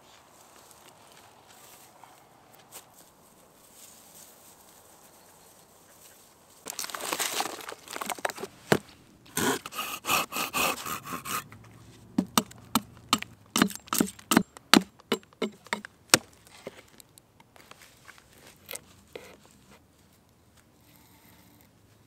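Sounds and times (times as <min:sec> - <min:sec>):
logs being handled: 0:00.0 - 0:20.7
knife shaving wood: 0:06.7 - 0:11.5
saw rasping through log: 0:09.3 - 0:11.5, 0:12.2 - 0:15.8.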